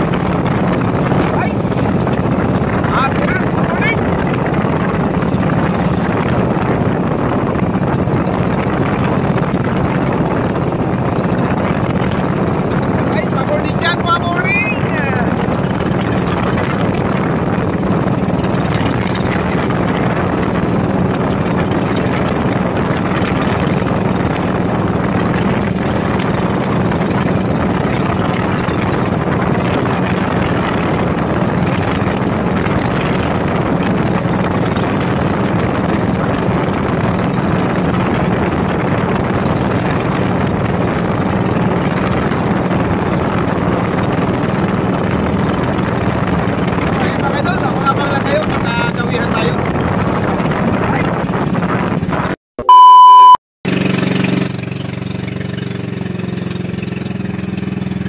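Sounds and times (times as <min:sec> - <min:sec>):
water rushing along hull: 0:00.0 - 0:52.9, 0:53.7 - 0:58.0
boat engine running: 0:00.0 - 0:58.0.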